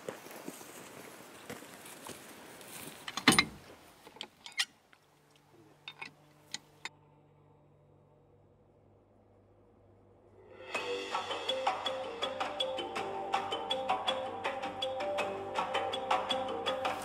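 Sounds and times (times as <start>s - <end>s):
faint background noise: 0.0s - 10.7s
faint hum: 5.1s - 10.8s.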